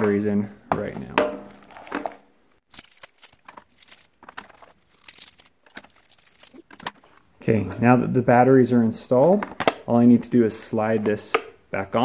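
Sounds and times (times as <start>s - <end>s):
plastic packaging crinkling: 1.5s - 7.2s.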